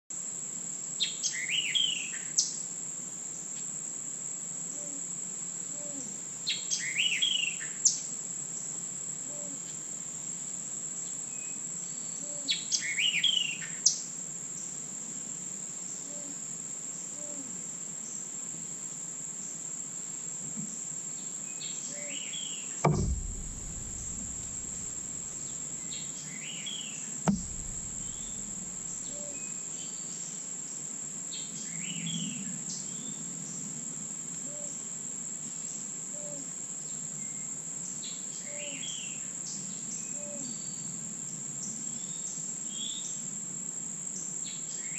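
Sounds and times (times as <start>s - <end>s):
sharp clicks: 22.9s - 25.7s, 27.3s - 29.2s
dull thumps: 22.9s - 26.0s, 27.3s - 29.5s.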